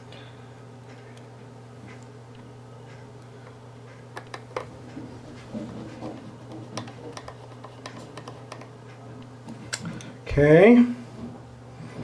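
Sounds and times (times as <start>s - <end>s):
steady low hum: 0.0s - 12.0s
screwdriver clicks and ticks: 6.8s - 8.7s.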